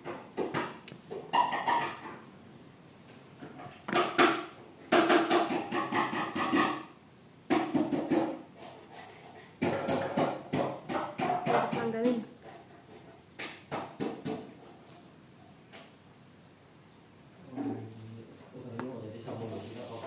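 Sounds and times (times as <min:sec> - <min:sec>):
sharp knocks: 0:03.9 - 0:08.4, 0:09.6 - 0:12.2, 0:13.4 - 0:14.5.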